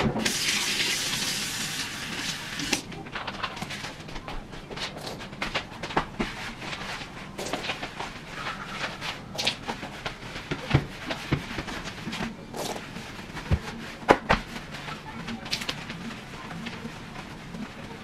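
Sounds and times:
mop scrubbing floor: 0:04.0 - 0:18.0.

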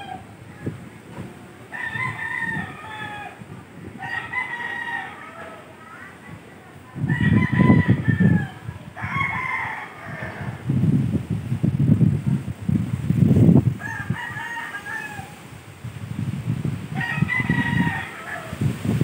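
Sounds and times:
gusty wind buffeting microphone: 0:00.0 - 0:19.0
rooster crowing: 0:01.7 - 0:03.4, 0:04.0 - 0:05.6, 0:07.1 - 0:10.6, 0:13.8 - 0:15.4, 0:16.9 - 0:18.8.

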